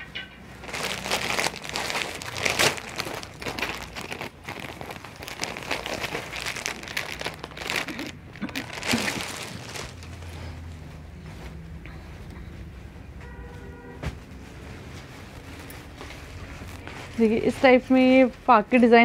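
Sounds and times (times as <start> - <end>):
plastic packaging crinkling: 0.5 - 10.6.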